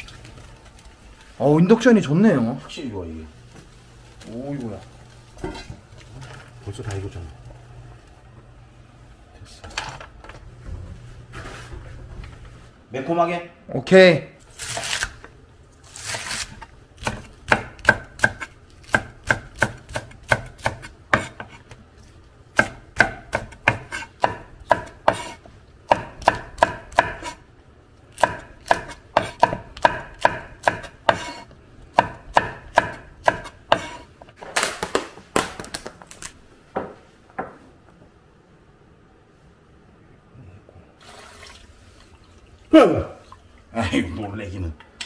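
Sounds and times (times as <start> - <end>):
knife chopping on wooden board: 17.0 - 21.6, 22.6 - 27.4, 28.2 - 34.1.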